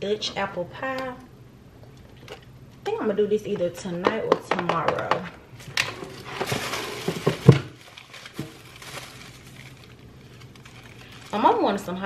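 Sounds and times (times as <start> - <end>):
shopping bag rustling: 5.6 - 12.0.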